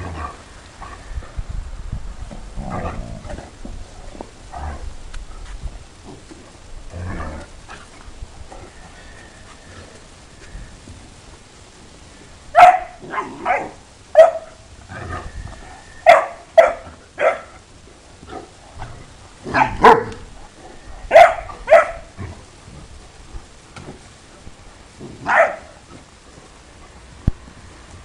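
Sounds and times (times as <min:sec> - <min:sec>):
dogs barking: 0:12.6 - 0:14.6, 0:16.0 - 0:17.6, 0:19.5 - 0:20.3, 0:21.1 - 0:22.1, 0:25.2 - 0:25.8.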